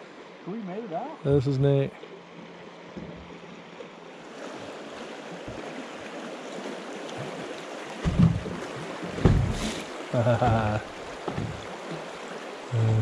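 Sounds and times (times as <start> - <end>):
river water rushing: 0.0 - 13.0
loud low thump: 8.0 - 8.6, 9.2 - 9.8.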